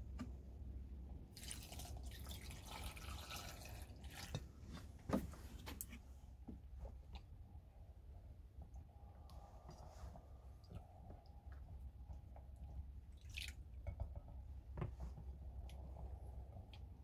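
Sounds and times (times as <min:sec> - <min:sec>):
water trickling onto vegetables: 0:01.3 - 0:04.6, 0:13.0 - 0:13.7.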